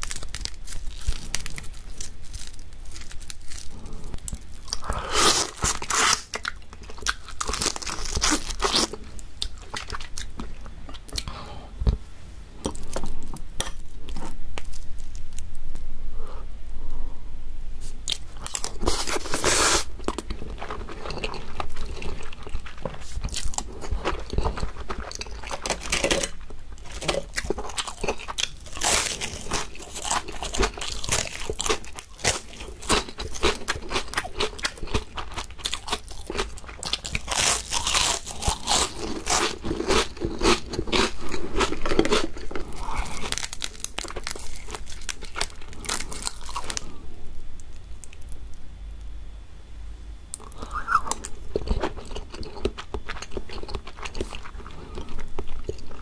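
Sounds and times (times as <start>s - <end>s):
crunching and chewing of crisp chips: 0.0s - 11.4s, 12.6s - 15.5s, 17.8s - 48.6s, 50.3s - 56.0s.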